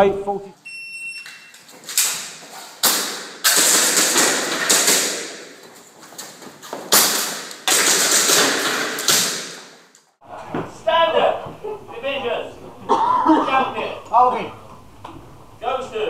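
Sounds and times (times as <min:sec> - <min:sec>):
airsoft pistol shots: 0:02.8 - 0:05.5, 0:07.0 - 0:09.8
pellets striking metal targets: 0:02.8 - 0:05.6, 0:06.9 - 0:09.9.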